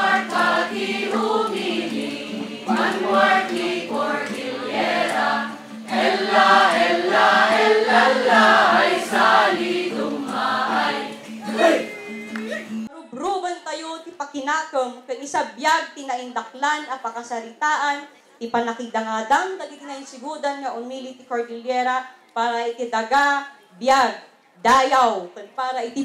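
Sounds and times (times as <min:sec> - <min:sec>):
voices singing in chorus: 0:00.0 - 0:12.2.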